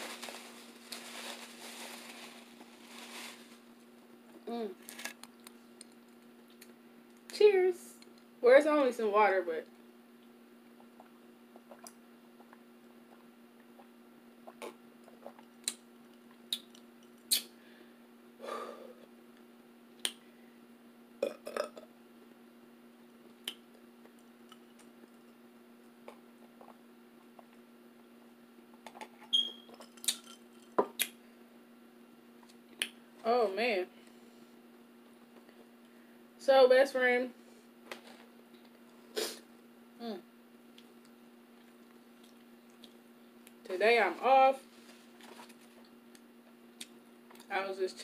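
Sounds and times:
faint steady hum: 0.0s - 48.0s.

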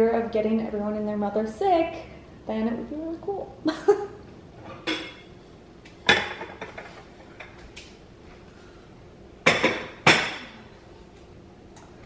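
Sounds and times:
kitchenware clinking and knocking: 4.6s - 5.3s, 6.0s - 7.5s, 9.4s - 10.6s.

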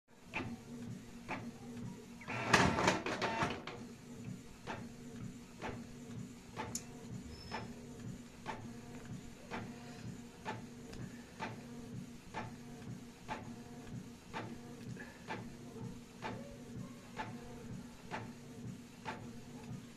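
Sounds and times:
inkjet printer motor humming: 0.4s - 4.3s
printer clattering: 2.3s - 3.8s.

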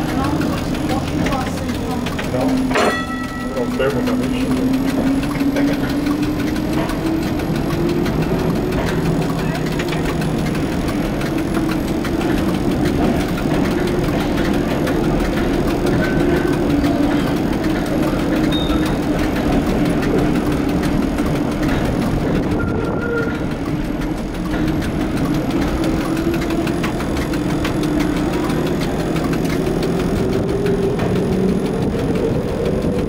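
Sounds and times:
old car body rattling: 0.0s - 33.0s
streetcar motor hum: 0.0s - 33.0s
short high squeaks: 18.5s - 18.9s, 22.5s - 23.5s.

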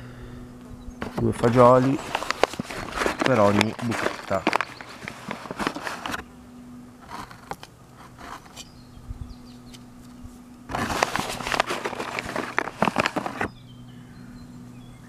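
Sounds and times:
faint steady buzz: 0.0s - 15.0s
soil crunching and scuffing: 1.0s - 6.2s, 9.7s - 13.5s.

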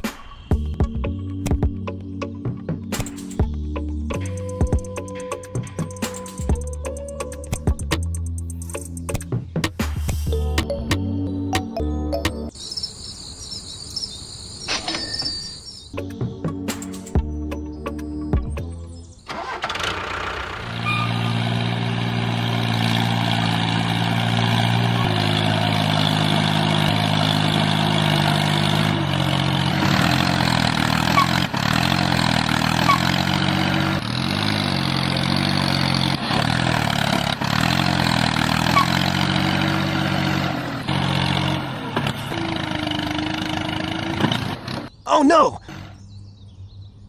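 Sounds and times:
tractor engine running: 19.3s - 45.0s.

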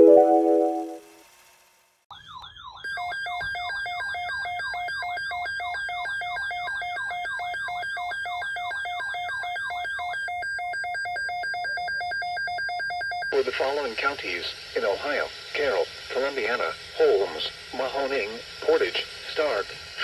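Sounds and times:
warbling siren-like alert tone: 0.0s - 1.2s.

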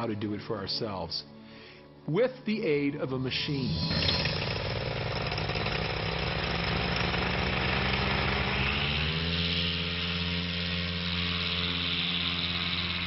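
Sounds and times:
propeller aircraft engine running: 3.6s - 13.0s.

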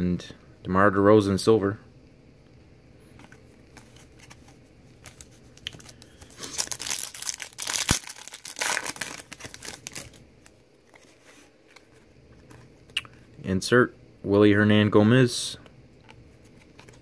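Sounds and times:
wrapper tearing and crinkling: 5.0s - 11.1s.

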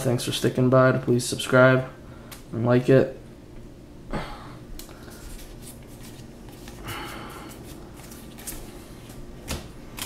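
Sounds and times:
cards sliding rustle: 5.0s - 9.2s.

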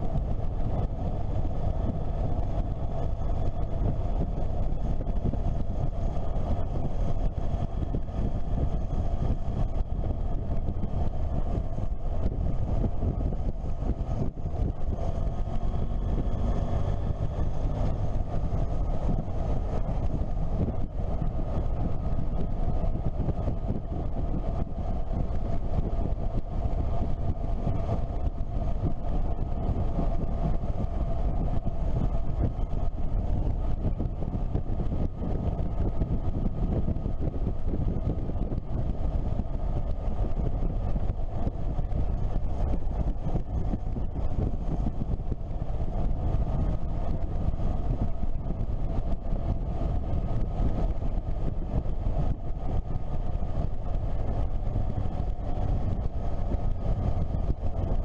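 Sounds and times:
motorcycle engine drone: 0.0s - 58.0s
wind rush on microphone: 0.0s - 58.0s.

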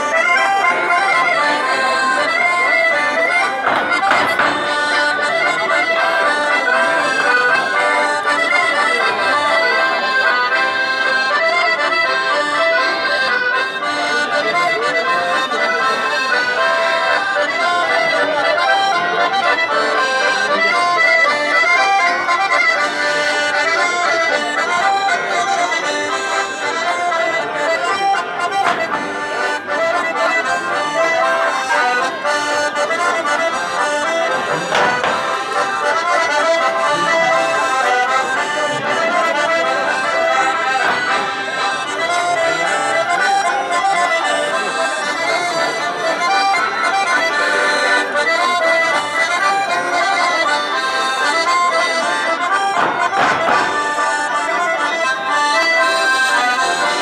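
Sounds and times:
accordion folk dance tune: 0.0s - 57.0s.

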